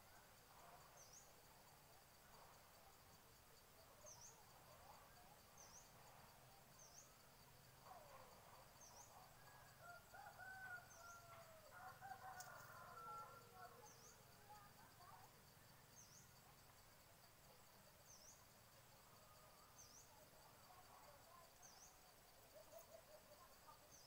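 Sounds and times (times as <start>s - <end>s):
high insect trill: 4.0s - 24.0s
rooster crowing: 9.8s - 13.5s.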